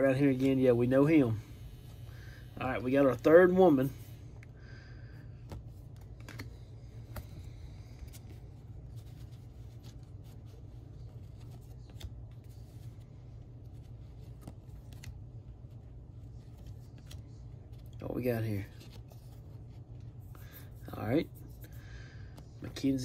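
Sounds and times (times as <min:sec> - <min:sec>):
steady low hum: 0:00.0 - 0:23.0
cards flipped by hand: 0:05.4 - 0:20.8.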